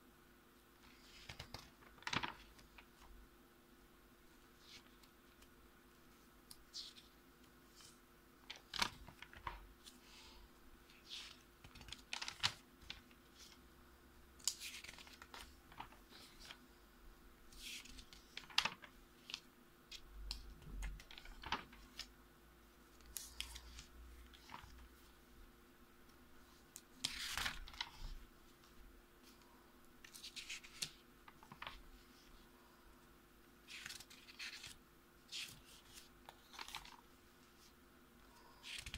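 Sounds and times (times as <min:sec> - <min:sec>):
pages flipping: 0:00.8 - 0:03.1, 0:06.4 - 0:13.6, 0:14.4 - 0:16.6, 0:17.5 - 0:22.1, 0:23.0 - 0:25.1, 0:26.4 - 0:32.3, 0:33.6 - 0:37.7, 0:38.4 - 0:38.9
paper pages rustling: 0:00.8 - 0:03.2, 0:04.4 - 0:13.6, 0:14.4 - 0:16.6, 0:17.5 - 0:22.1, 0:22.9 - 0:25.2, 0:26.4 - 0:32.4, 0:33.6 - 0:37.7, 0:38.3 - 0:38.9.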